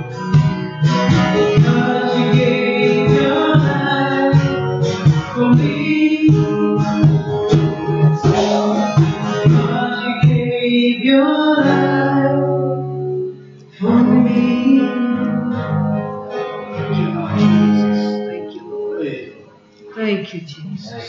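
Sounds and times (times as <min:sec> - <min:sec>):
strummed acoustic guitar: 0:00.0 - 0:19.8
woman singing worship song: 0:01.5 - 0:04.6, 0:08.2 - 0:13.0, 0:13.7 - 0:16.1.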